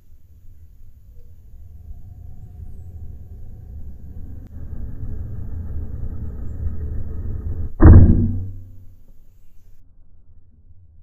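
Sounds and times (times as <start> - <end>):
wind buffeting microphone: 0.2 - 8.7.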